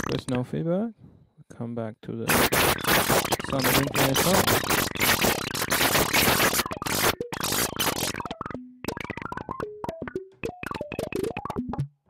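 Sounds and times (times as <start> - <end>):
noisy chaotic synthesizer texture: 2.3 - 9.6.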